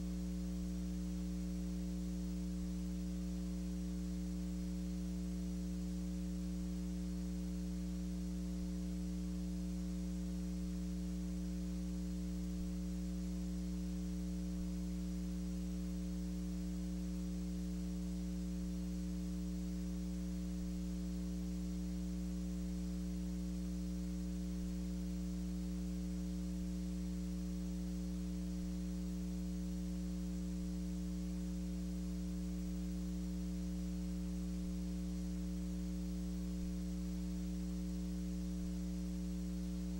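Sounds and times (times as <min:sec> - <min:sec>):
electrical mains hum: 0:00.0 - 0:39.9
faint hiss: 0:00.0 - 0:39.9.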